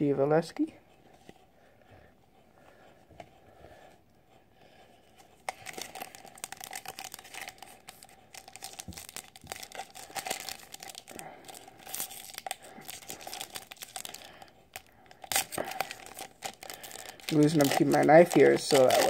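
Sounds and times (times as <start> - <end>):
foil crinkling: 5.5 - 19.0
foil pack tearing: 5.5 - 19.0.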